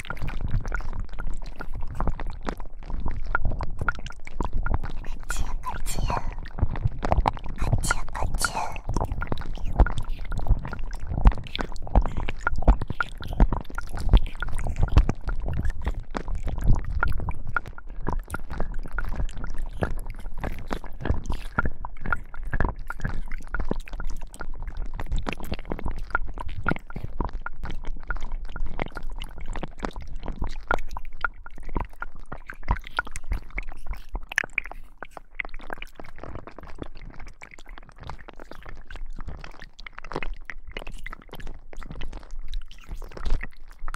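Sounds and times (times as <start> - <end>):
slime squelching and crackling: 7.7 - 25.6, 29.9 - 43.9.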